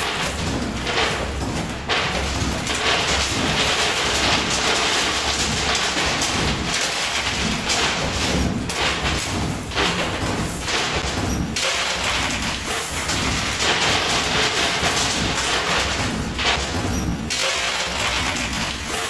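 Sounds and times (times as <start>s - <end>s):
coins clattering in pusher machine: 0.0s - 19.0s.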